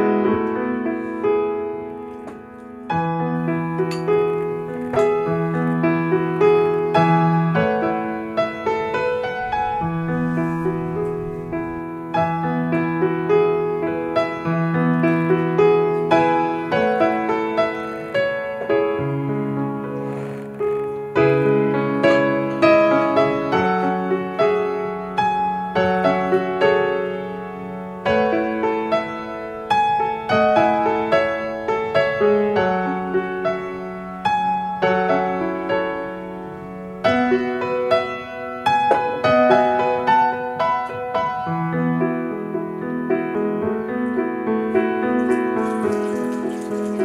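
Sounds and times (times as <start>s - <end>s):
piano music: 0.0s - 47.0s
water pouring into a ceramic bowl: 45.1s - 47.0s.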